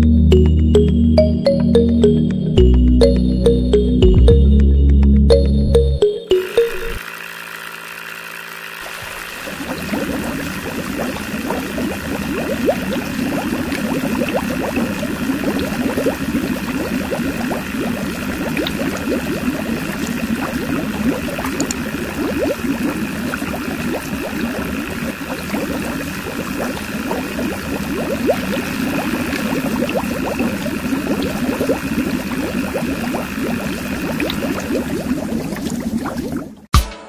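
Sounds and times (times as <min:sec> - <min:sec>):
small motor humming: 0:06.4 - 0:34.5
water splashing into tank: 0:08.8 - 0:36.7.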